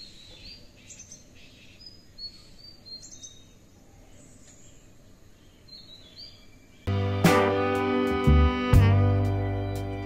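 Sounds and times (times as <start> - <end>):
small birds chirping: 0.0 - 6.9, 9.2 - 10.0
faint outdoor background noise: 0.0 - 10.0.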